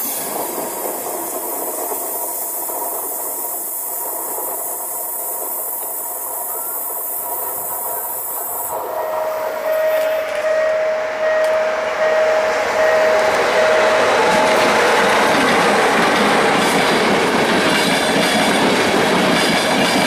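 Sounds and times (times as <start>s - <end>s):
electric locomotive approaching: 0.0s - 20.0s
high whine: 8.4s - 17.3s.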